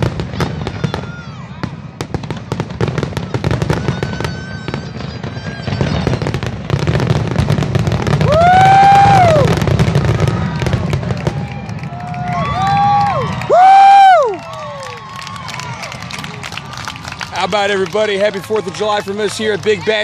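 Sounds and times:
fireworks bursting: 0:00.0 - 0:20.0
person whooping: 0:08.2 - 0:09.5, 0:11.9 - 0:15.9.

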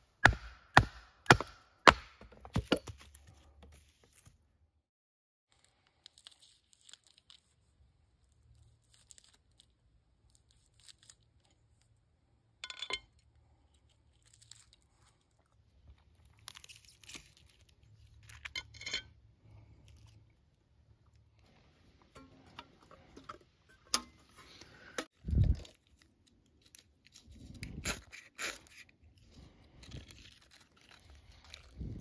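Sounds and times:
plastic wrapping crinkling: 0:05.5 - 0:07.6, 0:29.9 - 0:32.0.

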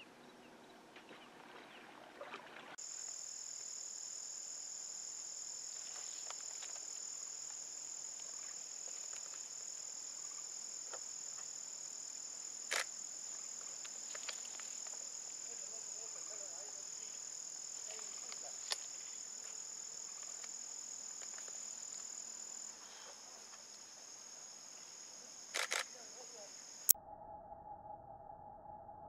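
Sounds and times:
high-pitched insect chorus: 0:02.8 - 0:26.9
sharp clicks: 0:25.6 - 0:25.9.

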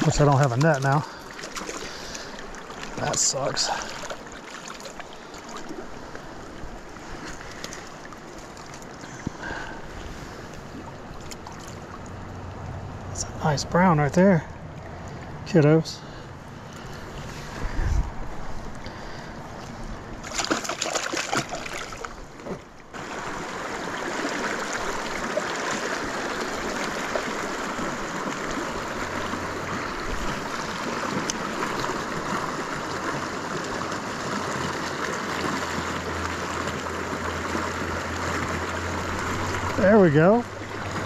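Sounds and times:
river water rushing: 0:00.0 - 0:41.0
short scuffs or splashes: 0:20.2 - 0:22.6.

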